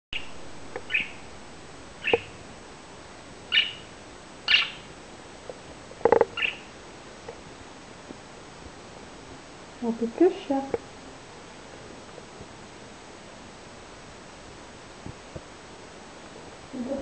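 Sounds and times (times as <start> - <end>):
budgerigar chirping: 0.2 - 1.2, 2.0 - 2.4, 3.5 - 3.9, 4.5 - 4.9, 6.3 - 6.7.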